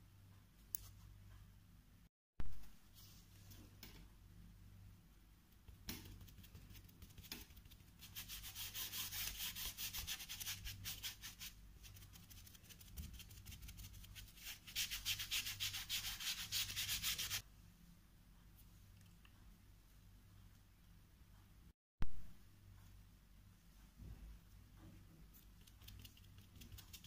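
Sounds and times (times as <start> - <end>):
sponge dabbing paint on paper: 5.6 - 17.4, 25.4 - 27.0.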